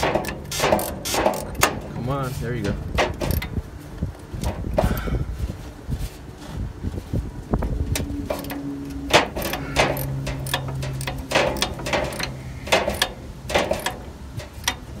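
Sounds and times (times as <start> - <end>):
wrench and pliers clicking on metal: 0.0 - 1.8, 3.1 - 3.5, 7.9 - 15.0.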